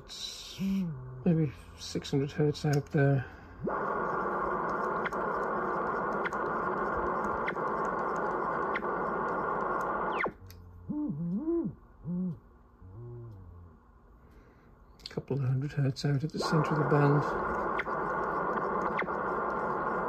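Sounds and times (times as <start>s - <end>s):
radio band noise hiss: 0.0s - 10.4s, 15.2s - 20.0s.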